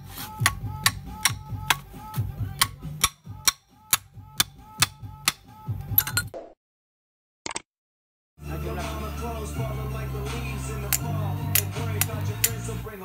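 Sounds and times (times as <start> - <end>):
steel hammer tapping on metal: 0.4 - 1.9, 2.6 - 5.4.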